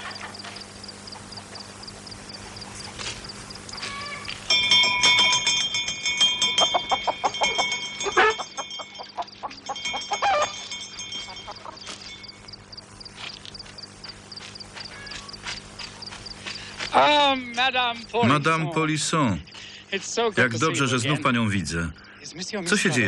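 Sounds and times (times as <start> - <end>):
chickens clucking and squawking: 0.0 - 4.5, 6.3 - 17.1
faint high chirping: 6.4 - 18.1.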